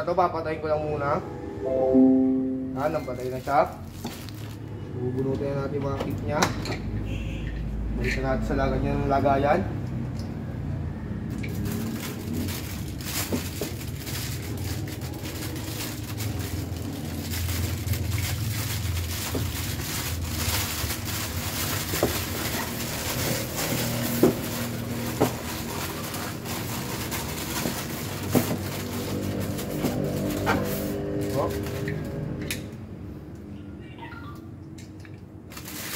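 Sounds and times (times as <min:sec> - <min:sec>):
plastic bags rustling: 0:02.8 - 0:05.0, 0:11.4 - 0:32.1, 0:35.5 - 0:35.9.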